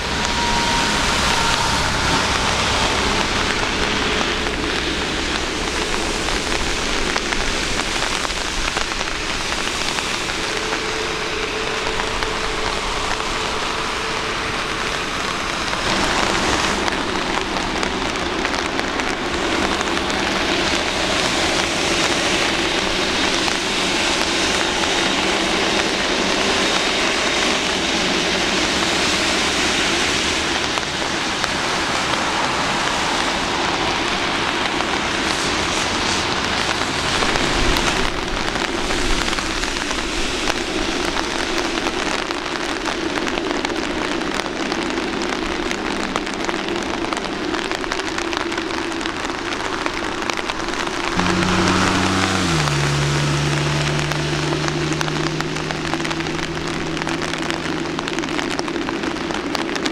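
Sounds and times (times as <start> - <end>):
jet engine low hum and whine: 0.0 - 32.2
distant jet takeoff thrust: 0.0 - 42.1, 49.2 - 59.9
steady rain: 0.0 - 59.9.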